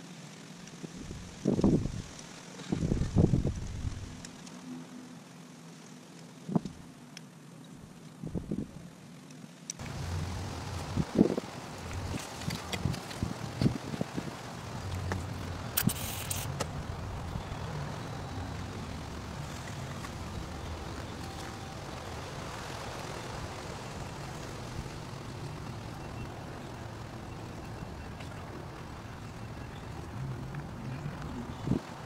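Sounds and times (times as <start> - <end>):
road traffic rumbling: 9.8 - 32.0.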